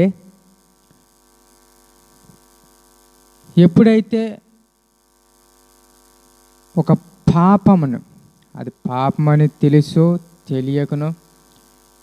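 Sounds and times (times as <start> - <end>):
faint mains hum: 0.0 - 12.0
man speaking: 3.5 - 4.5, 6.7 - 11.2.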